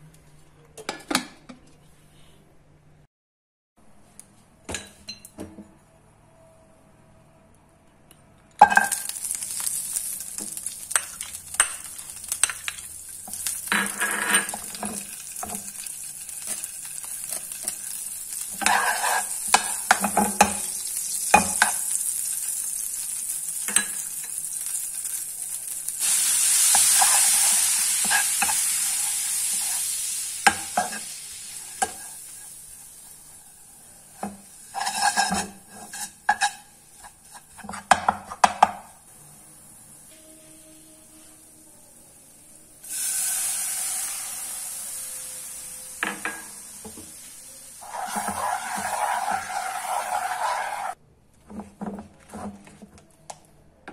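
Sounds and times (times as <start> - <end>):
butter sizzling in a frying pan: 8.8 - 37.9, 42.8 - 51.0
spoon tapping and scraping pan: 10.4 - 22.0, 26.7 - 28.7, 31.7 - 32.2, 34.2 - 38.9.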